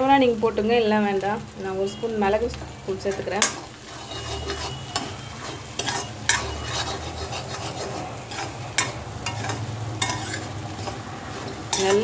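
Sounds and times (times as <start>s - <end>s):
food sizzling in a pan: 0.0s - 12.0s
spoon scraping a metal pan: 3.1s - 12.0s.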